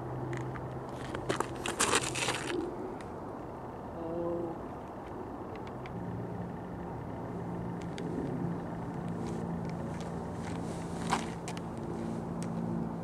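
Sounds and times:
vehicle engine humming: 0.0 - 13.0
light clicks and rustles: 7.8 - 12.7.

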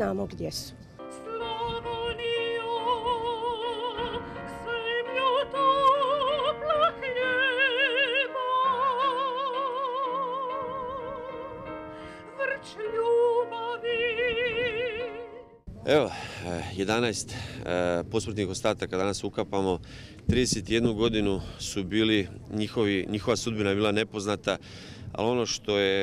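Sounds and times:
woman singing operatically: 1.2 - 11.7, 12.3 - 15.5.

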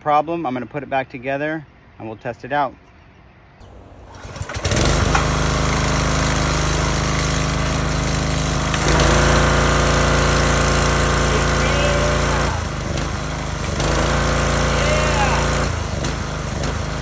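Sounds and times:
pressure washer engine running: 3.7 - 17.0
high-pressure water spray: 4.2 - 17.0.

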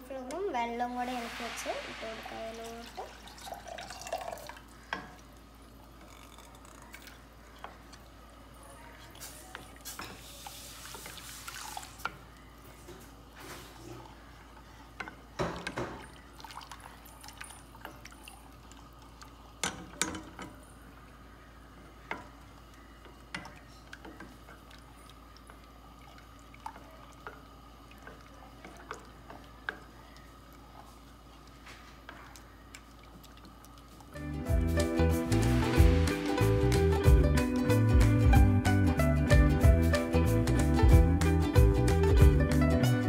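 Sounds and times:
wet sloshing mixture: 1.0 - 20.6, 21.9 - 34.2.

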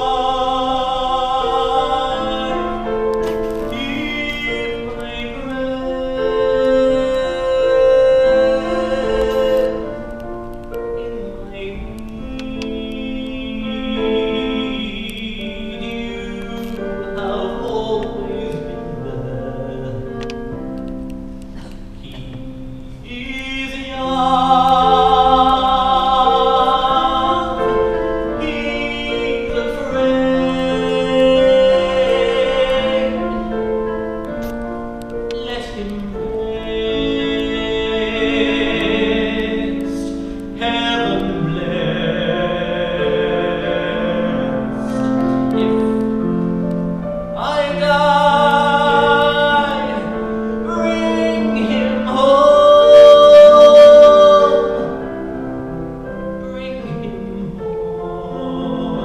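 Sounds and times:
man singing a slow ballad: 0.0 - 20.7, 22.0 - 59.0
electric keyboard chords: 0.0 - 59.0.

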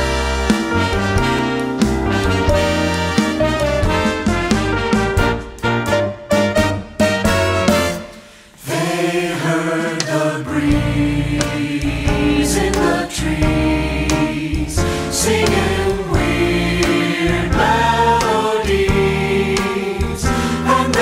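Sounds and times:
instrumental accompaniment: 0.0 - 21.0
choir singing close harmony: 8.6 - 21.0.

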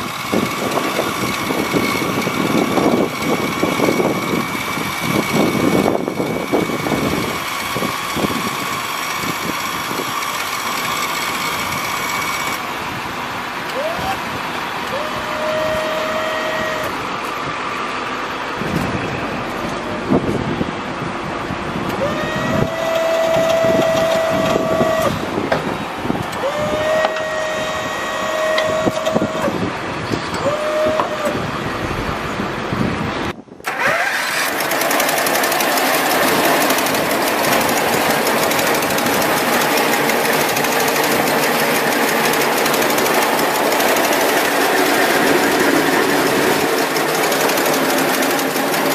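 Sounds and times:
small engine clattering: 0.0 - 12.6, 33.6 - 48.9
motor whining: 0.0 - 12.9, 13.6 - 17.3, 21.9 - 31.8, 33.6 - 48.9.

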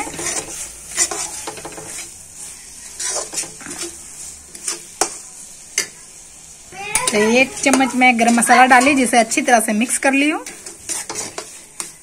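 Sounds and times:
spatula clacking on pan: 0.0 - 2.2, 3.0 - 6.0, 6.9 - 9.5, 10.2 - 12.0
masala sizzling in oil: 0.0 - 12.0
metal spatula scraping a pan: 0.0 - 12.0.

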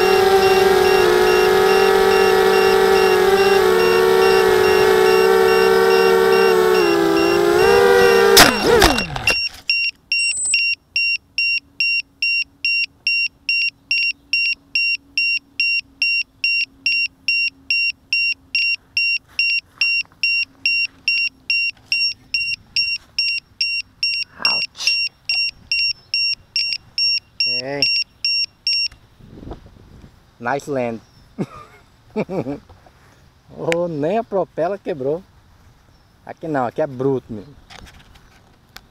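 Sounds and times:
drone motors whining down: 0.0 - 9.6
high-pitched buzzer beeps: 0.0 - 28.9.

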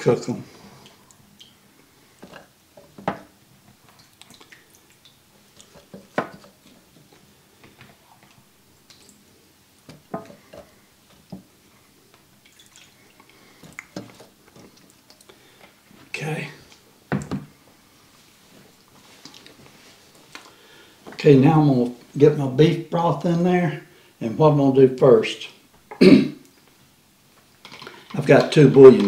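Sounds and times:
water dripping: 0.8 - 15.6.

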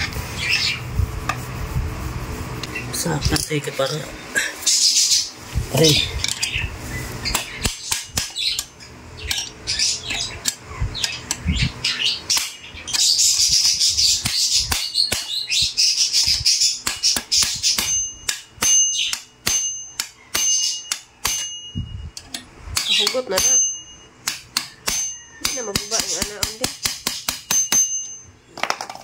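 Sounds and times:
birds chirping: 0.0 - 1.1, 2.6 - 28.9
hammer tapping steel punch: 16.8 - 28.3.

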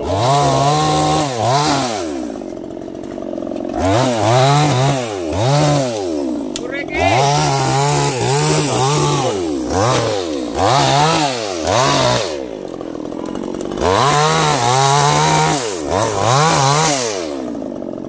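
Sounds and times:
chainsaw revving: 0.0 - 18.0.

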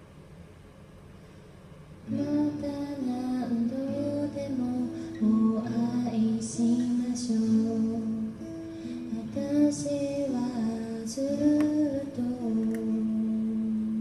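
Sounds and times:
acoustic guitar: 1.2 - 14.0
woman singing: 2.1 - 14.0.

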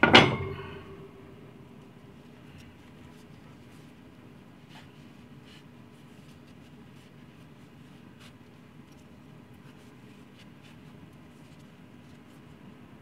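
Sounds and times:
steady low hum: 0.0 - 13.0
cloth rubbing on knife: 2.7 - 12.7.

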